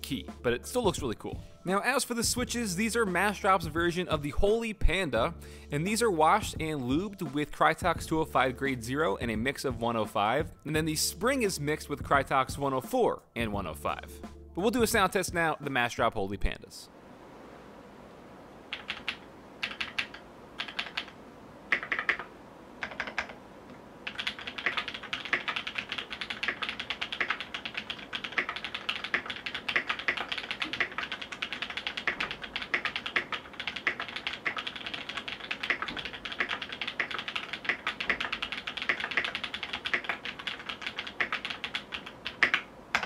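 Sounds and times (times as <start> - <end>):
mechanical keyboard typing: 18.7 - 23.4, 24.0 - 43.0.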